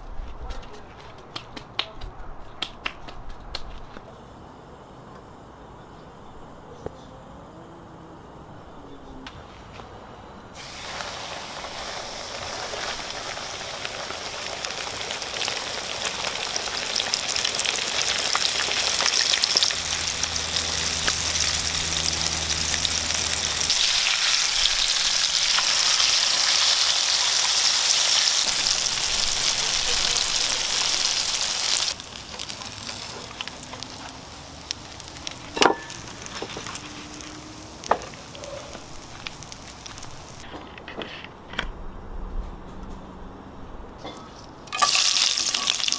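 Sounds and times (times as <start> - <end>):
fish sizzling in hot oil: 10.6 - 40.4, 44.7 - 45.9.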